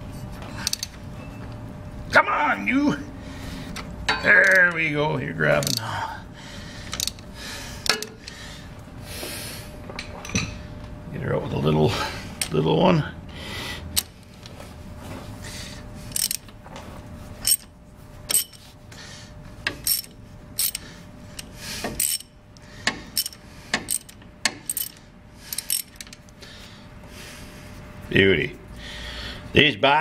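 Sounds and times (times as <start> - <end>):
metal tools clinking: 0.6 - 1.0, 4.1 - 4.9, 5.5 - 6.0, 16.1 - 16.4, 17.4 - 17.7, 18.3 - 18.6, 19.8 - 20.9, 22.0 - 22.3, 23.2 - 26.2.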